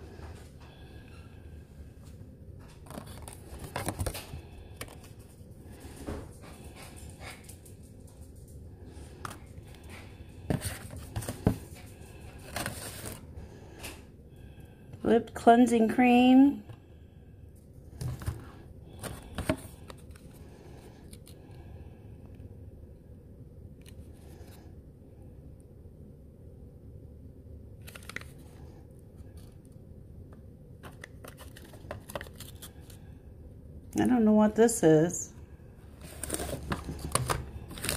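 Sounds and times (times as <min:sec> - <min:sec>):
low steady hum: 0:00.0 - 0:37.9
paper and cardboard rustling: 0:02.7 - 0:05.4, 0:09.2 - 0:13.2, 0:30.8 - 0:33.0, 0:35.9 - 0:37.9
cardboard box clicks and rustles: 0:36.0 - 0:37.9.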